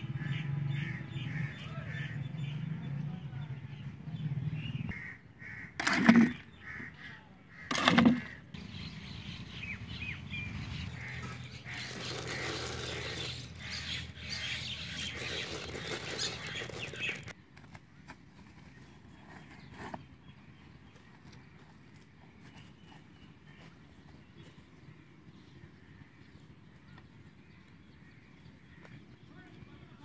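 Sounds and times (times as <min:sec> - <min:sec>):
birds chirping and calling: 0:00.0 - 0:17.4.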